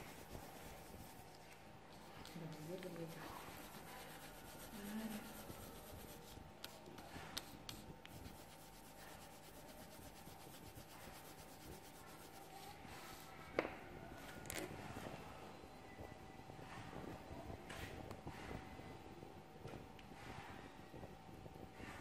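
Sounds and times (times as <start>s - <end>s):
colored pencil scratching on paper: 0.0s - 13.5s.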